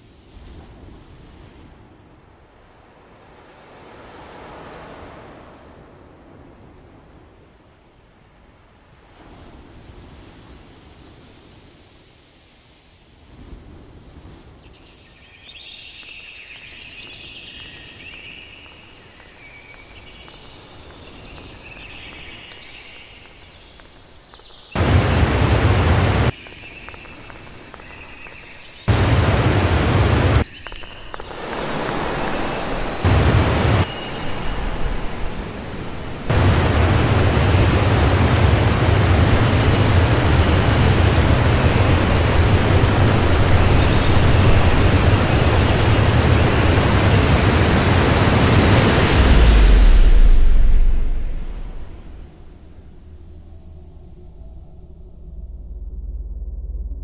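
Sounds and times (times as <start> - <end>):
static-like hiss: 15.0 - 53.2
heavy low rumble: 24.8 - 26.3, 28.9 - 30.4, 33.0 - 34.9, 36.3 - 57.0.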